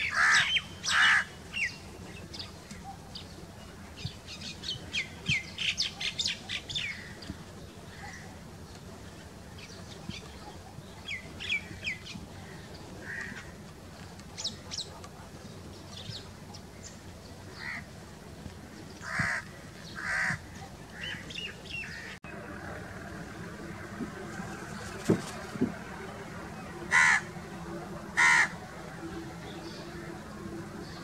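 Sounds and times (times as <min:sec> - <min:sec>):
crows cawing: 0:00.0 - 0:01.4, 0:12.4 - 0:13.5, 0:17.6 - 0:17.9, 0:19.0 - 0:21.2, 0:26.9 - 0:27.3, 0:28.2 - 0:28.6
small birds chirping: 0:00.0 - 0:31.0
low background rumble: 0:21.6 - 0:31.0.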